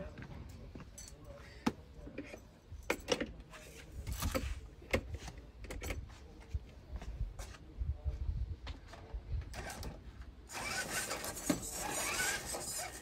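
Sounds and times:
toy truck dragged over gravel: 10.5s - 13.0s.

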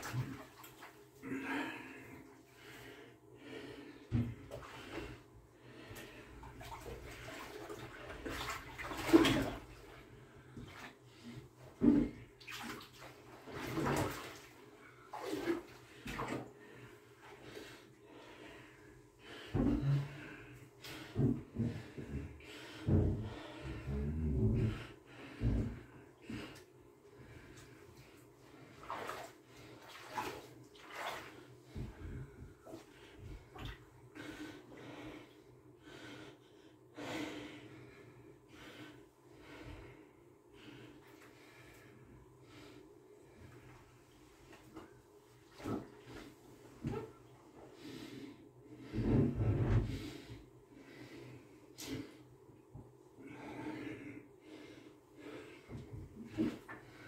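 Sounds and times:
bathwater sloshing and splashing: 0.0s - 26.6s, 27.2s - 35.2s, 42.5s - 50.3s, 54.5s - 57.0s
person breathing heavily: 1.2s - 6.4s, 16.6s - 27.9s, 34.1s - 43.6s, 53.2s - 57.0s.

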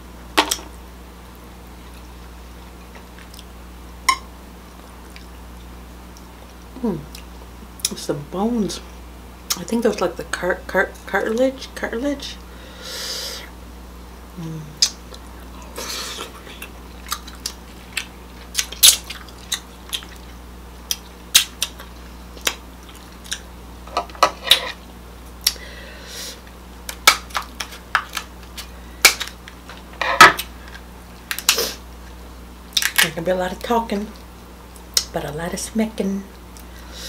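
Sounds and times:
chewing: 14.8s - 23.5s
crab shells cracking: 16.6s - 23.5s, 26.8s - 31.6s, 32.7s - 33.1s.

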